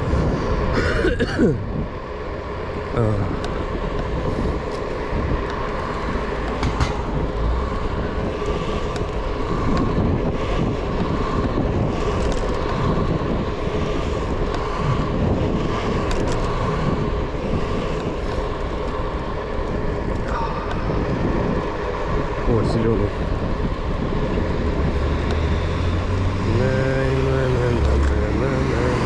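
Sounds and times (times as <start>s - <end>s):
scooter wheels rolling rumble: 0.0s - 29.0s.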